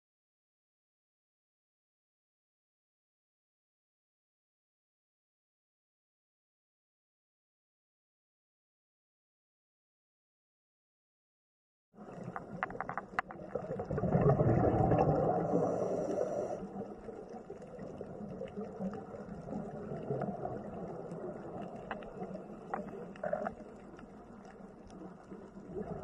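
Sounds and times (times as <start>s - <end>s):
small underwater clicks: 12.0s - 26.0s
underwater rumble of moving water: 12.0s - 26.0s.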